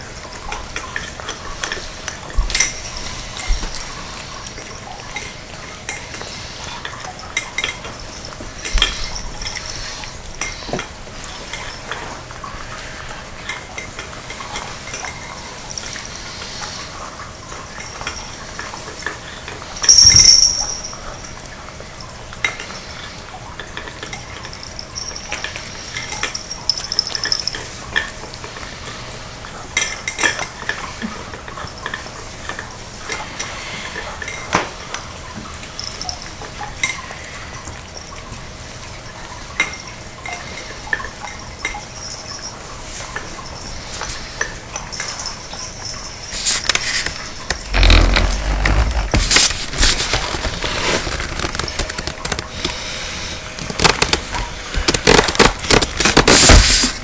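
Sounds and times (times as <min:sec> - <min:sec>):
cats eating from bowls: 0:00.0 - 0:57.0.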